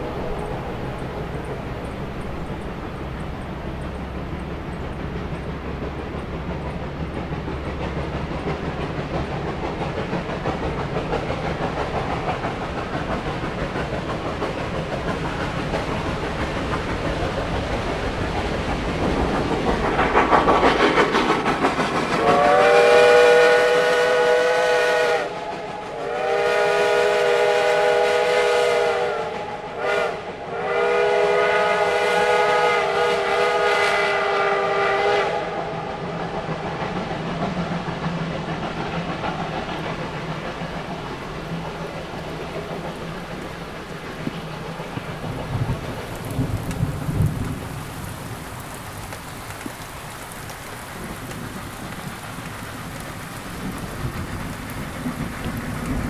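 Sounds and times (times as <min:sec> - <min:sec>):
steam locomotive running: 0:00.0 - 0:56.0
steam whistle blasts: 0:22.2 - 0:36.0.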